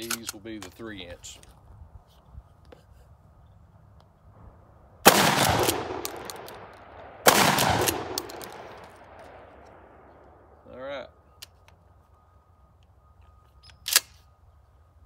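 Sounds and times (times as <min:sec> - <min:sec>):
shotgun shots with echo: 0:05.0 - 0:10.1.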